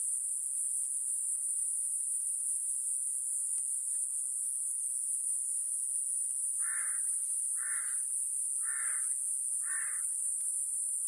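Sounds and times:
cicadas buzzing: 0.0 - 11.0
crow cawing: 6.6 - 8.0, 8.6 - 10.1.

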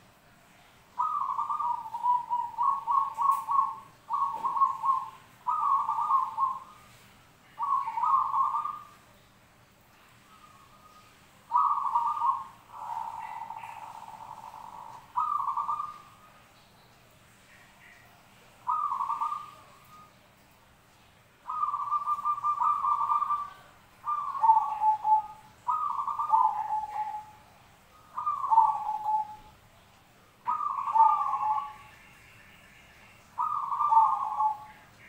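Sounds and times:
dove cooing: 0.9 - 7.0, 7.6 - 9.0, 10.2 - 16.2, 18.6 - 20.2, 21.4 - 29.5, 30.4 - 31.9, 33.4 - 34.9.

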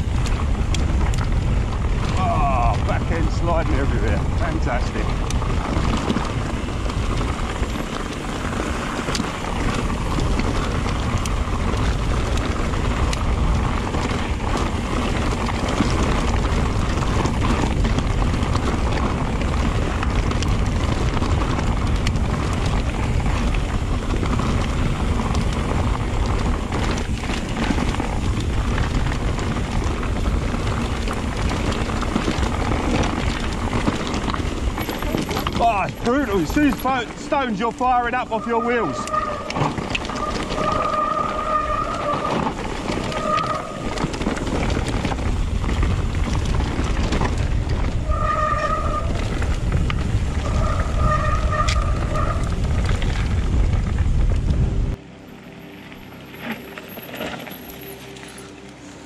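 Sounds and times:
stones clicking off wheels: 0.0 - 55.0, 55.8 - 58.8
wind rush on microphone: 0.0 - 55.2
tyres crunching over gravel: 0.0 - 59.0.

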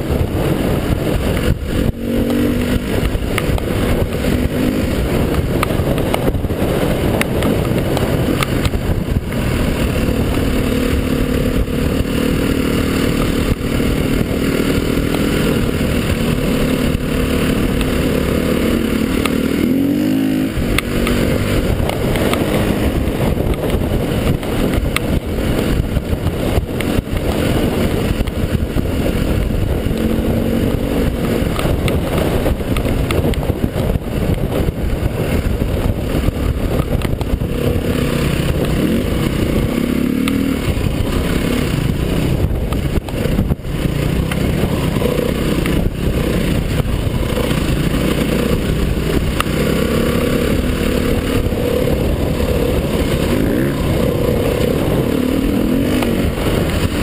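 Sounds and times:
dirt bike engine revving: 0.0 - 57.0
wind noise on microphone: 0.0 - 57.0.

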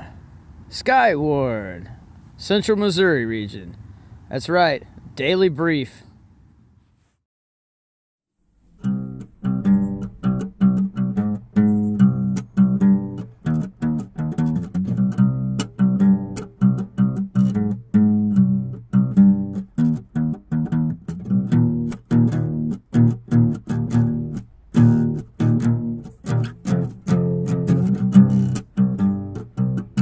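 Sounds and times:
plucked guitar music: 8.6 - 30.0.

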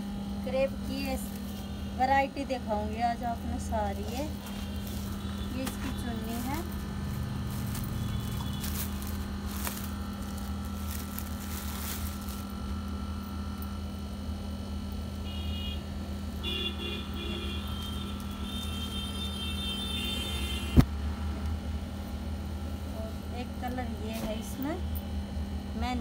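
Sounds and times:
steady low hum: 0.0 - 26.0
fabric rustling: 4.0 - 12.7
plastic packaging crinkling: 4.0 - 12.9.

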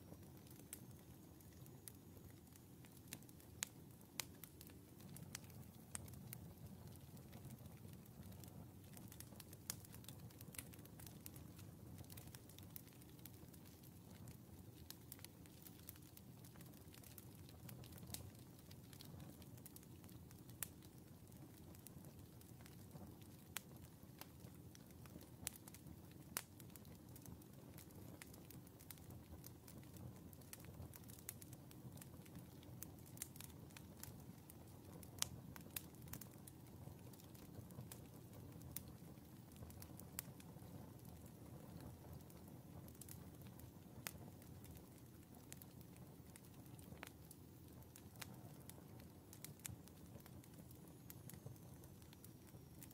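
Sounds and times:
burning wood crackling and popping: 0.0 - 52.9.

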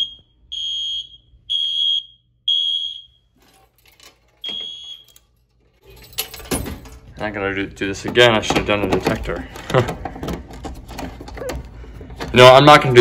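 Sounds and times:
fire alarm horn beeping: 0.0 - 3.4, 4.3 - 5.5.

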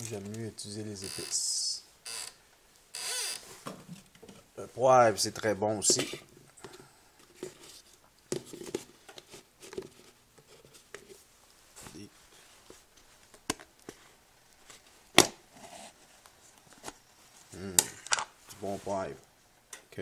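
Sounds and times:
hands handling spice containers: 5.8 - 11.2.

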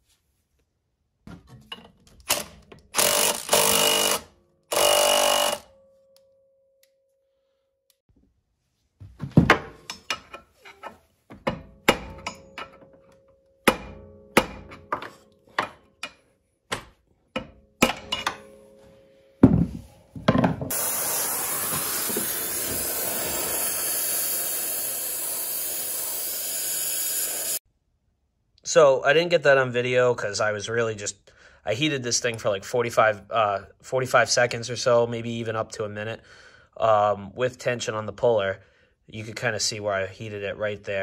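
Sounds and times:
gas torch hissing: 20.7 - 27.6.

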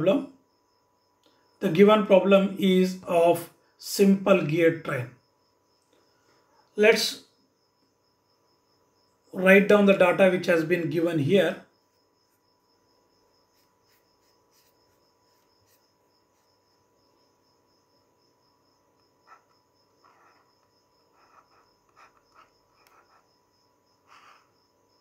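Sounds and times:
faint electronic hum and whine: 0.0 - 25.0
stylus scratching on a tablet: 13.4 - 16.7, 19.0 - 25.0.

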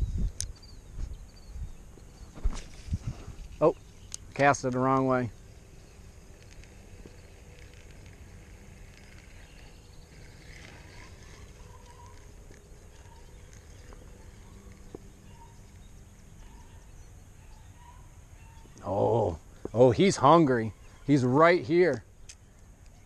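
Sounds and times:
distant animal calls: 5.3 - 21.6.

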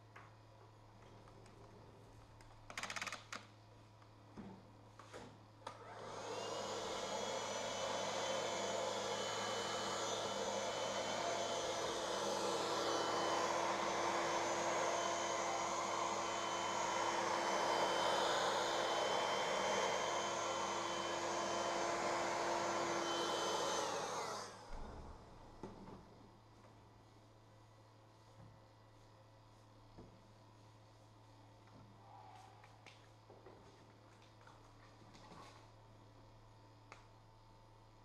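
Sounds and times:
fan motor whining: 5.8 - 25.2.

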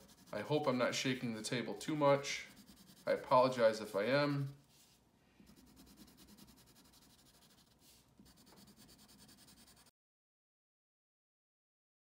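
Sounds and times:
pencil scratching on paper: 0.0 - 0.8, 1.7 - 9.9.

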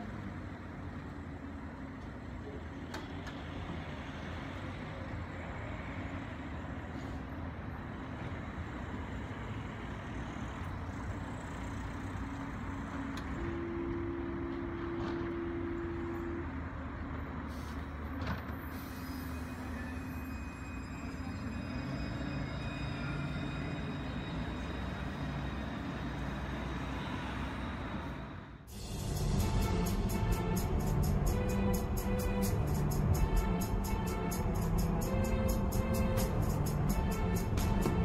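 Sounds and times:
tram equipment humming: 0.0 - 38.0
steady tone: 28.7 - 38.0.

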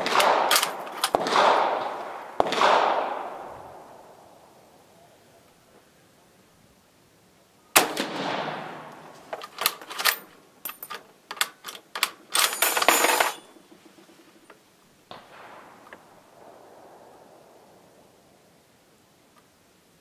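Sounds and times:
rifle shot: 0.0 - 4.0, 7.8 - 9.0, 15.1 - 16.6.

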